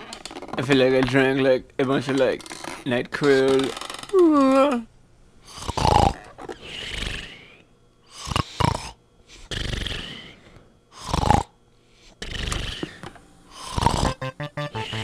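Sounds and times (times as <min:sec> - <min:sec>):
person snoring: 0:05.5 - 0:10.4, 0:11.0 - 0:11.5, 0:12.2 - 0:14.2.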